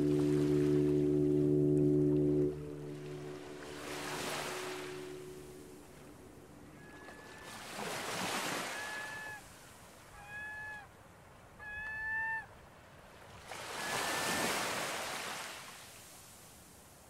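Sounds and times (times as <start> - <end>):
bird calling: 8.4 - 9.5, 10.1 - 10.9.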